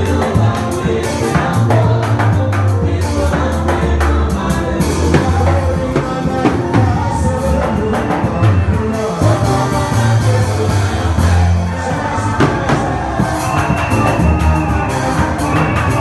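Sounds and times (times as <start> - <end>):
drums with steady beats: 0.0 - 16.0
electric bass: 0.0 - 16.0
person singing: 0.0 - 16.0.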